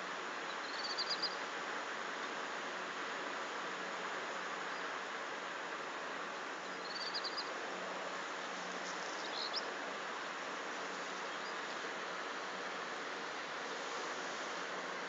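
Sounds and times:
outdoor background hiss: 0:00.0 - 0:15.0
small bird chirping: 0:00.5 - 0:01.4, 0:06.7 - 0:07.5, 0:09.0 - 0:09.7.

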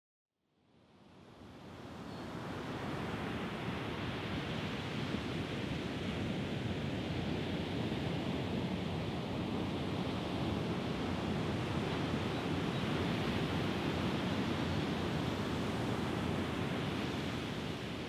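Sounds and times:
wind: 0:00.5 - 0:18.0.

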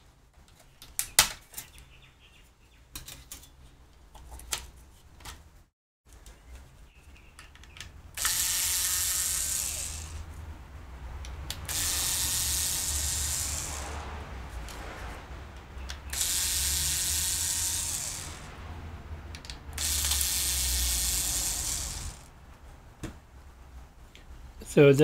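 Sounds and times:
electric screwdriver whirring: 0:08.2 - 0:10.3, 0:11.7 - 0:14.0, 0:16.1 - 0:18.5, 0:19.8 - 0:22.3.

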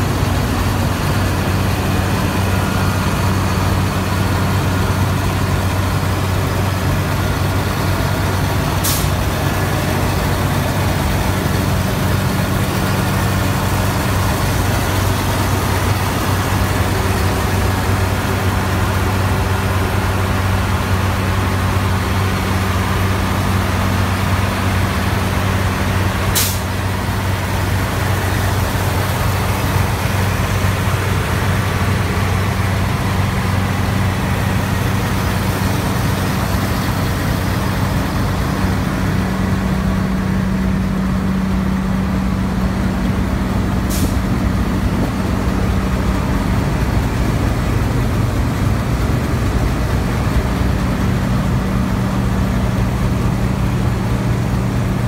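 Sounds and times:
harvester engine humming: 0:00.0 - 0:55.0.

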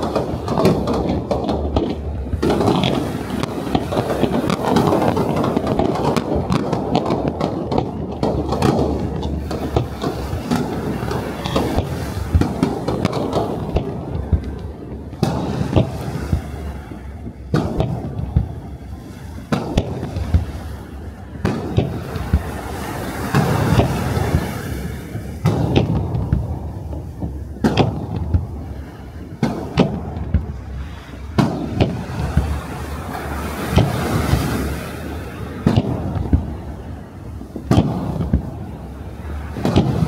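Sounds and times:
firework shells bursting: 0:00.0 - 0:16.6, 0:19.5 - 0:28.6
firework crackling: 0:00.0 - 0:40.0.

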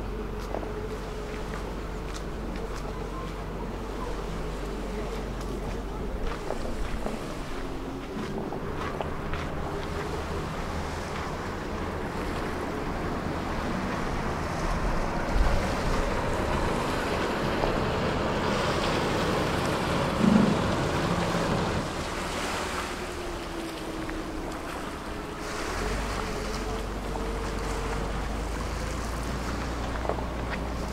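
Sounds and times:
faint boat engine tone: 0:00.0 - 0:30.9
water rushing along hull: 0:00.0 - 0:30.9
wind buffeting microphone: 0:20.1 - 0:22.0.

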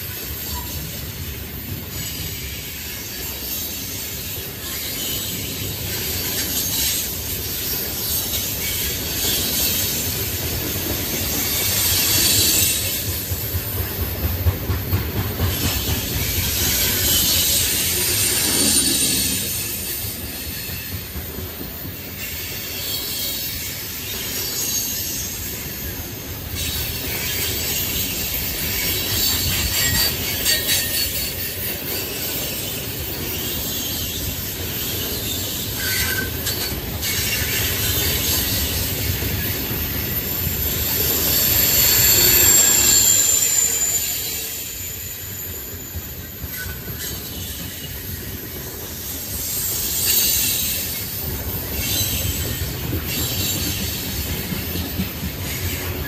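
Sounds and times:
train wheels rumbling on rails: 0:00.0 - 0:56.0
high wheel squeal: 0:16.2 - 0:21.0, 0:22.0 - 0:54.2.

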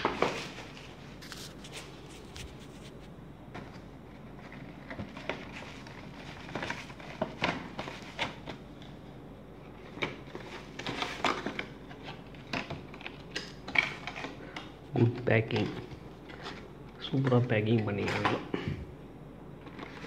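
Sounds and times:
bubble wrap crinkling: 0:00.0 - 0:03.0, 0:04.2 - 0:08.8.

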